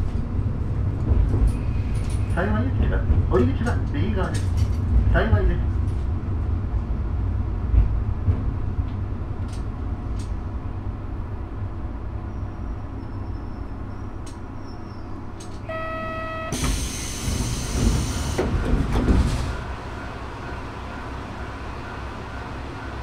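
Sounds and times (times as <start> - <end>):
electronic tone: 15.7 - 16.7
air hissing: 16.5 - 18.5.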